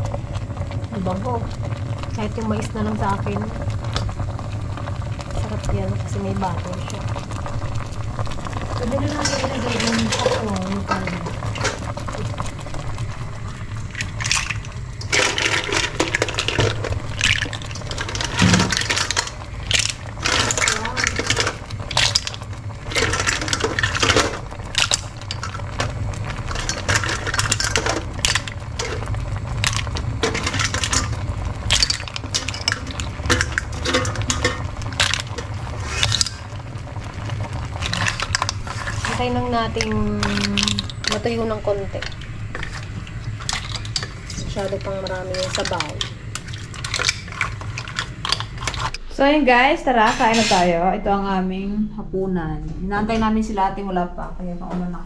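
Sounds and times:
steady low hum: 0.0s - 55.0s
utensils clinking against pan: 26.5s - 29.1s, 29.7s - 36.5s, 37.8s - 49.0s.

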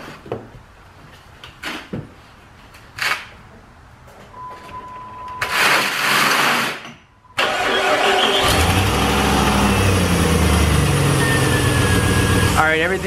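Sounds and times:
steady beep: 4.4s - 5.5s, 11.2s - 12.6s
car engine idling: 7.8s - 13.0s.

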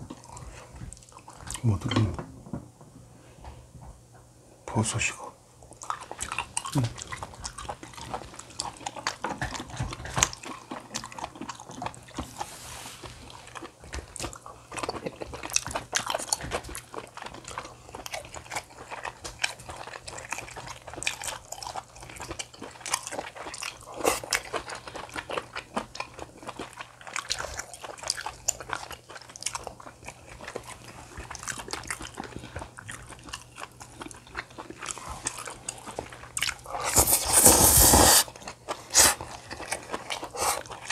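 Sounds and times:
food crunching: 0.0s - 2.2s, 5.6s - 40.9s
person chewing food: 0.0s - 2.2s, 5.6s - 40.9s.

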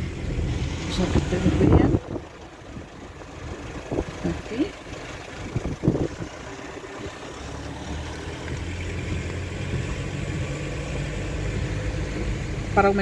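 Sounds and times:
car engine hum inside cabin: 0.0s - 13.0s.

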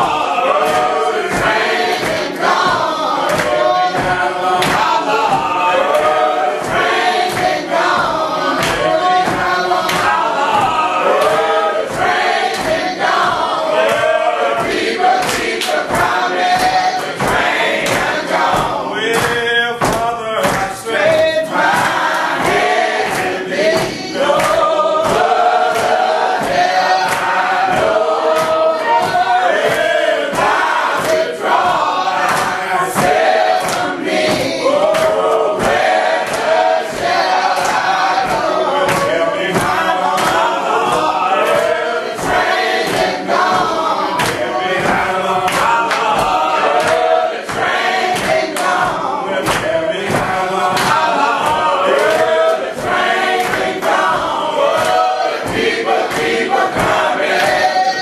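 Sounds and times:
congregation singing gospel song: 0.0s - 58.0s
sharp regular beats: 0.0s - 58.0s.

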